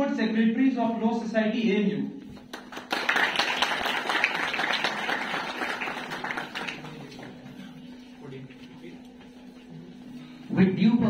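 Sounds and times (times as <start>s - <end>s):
audience applauding: 2.4s - 7.5s.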